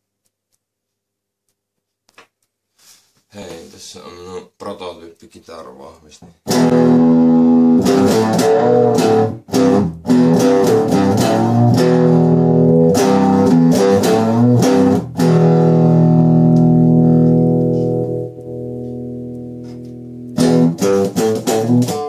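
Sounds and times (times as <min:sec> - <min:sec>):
distorted electric guitar chords: 0:06.4 - 0:22.0.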